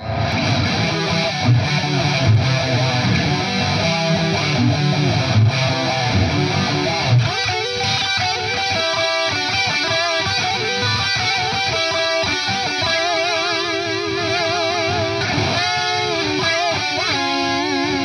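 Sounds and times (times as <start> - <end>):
distorted electric guitar with harmony: 0.0 - 18.0.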